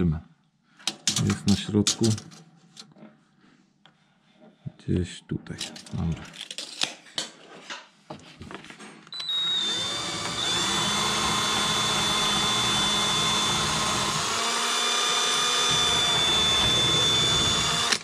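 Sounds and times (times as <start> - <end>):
electric drill boring into wood: 9.1 - 18.0.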